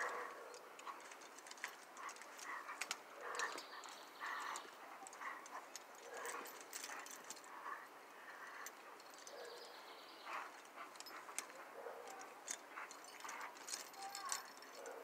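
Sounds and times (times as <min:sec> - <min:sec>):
chains clinking: 0:00.0 - 0:15.0
dogs growling in play: 0:02.0 - 0:08.8.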